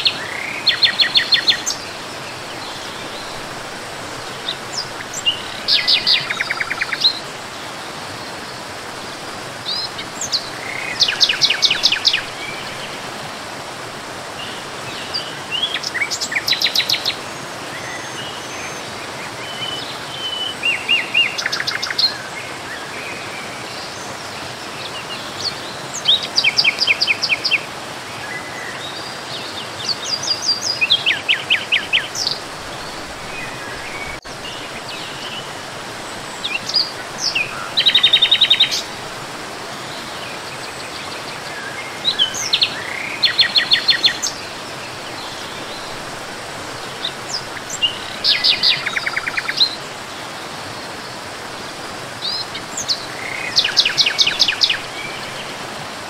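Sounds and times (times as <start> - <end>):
falling water rushing: 0.0 - 56.0.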